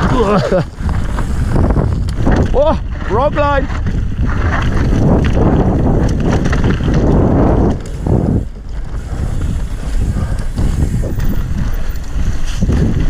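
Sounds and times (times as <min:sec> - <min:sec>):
bike tyres rolling on gravel: 0:00.0 - 0:13.0
wind on microphone: 0:00.0 - 0:13.0.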